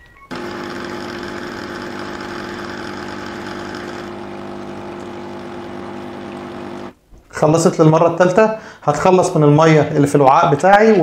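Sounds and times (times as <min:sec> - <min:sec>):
espresso machine pump humming: 0:00.3 - 0:07.0.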